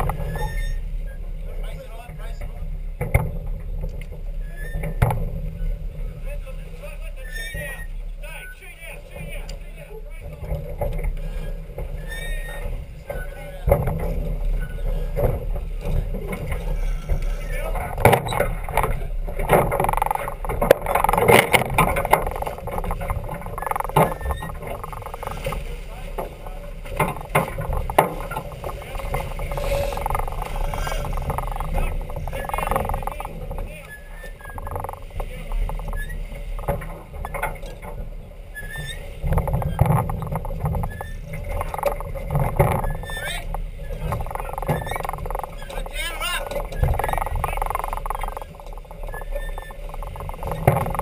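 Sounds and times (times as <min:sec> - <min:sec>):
water rushing along hull: 0:00.0 - 0:51.0
wind rumbling on microphone: 0:00.0 - 0:51.0
brief squeak: 0:00.2 - 0:00.8, 0:04.4 - 0:05.0, 0:07.2 - 0:08.6, 0:11.4 - 0:12.6, 0:23.6 - 0:25.4, 0:33.9 - 0:34.7, 0:35.8 - 0:36.2, 0:38.5 - 0:39.1, 0:40.8 - 0:41.3, 0:42.8 - 0:45.7, 0:47.8 - 0:50.6
knocks from deck rigging: 0:10.3 - 0:33.7.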